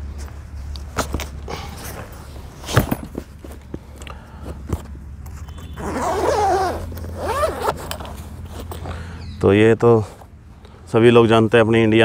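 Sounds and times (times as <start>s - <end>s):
clicks and rustling of case: 0.7s - 5.8s, 6.8s - 9.0s
zipper pulled open: 5.7s - 8.8s.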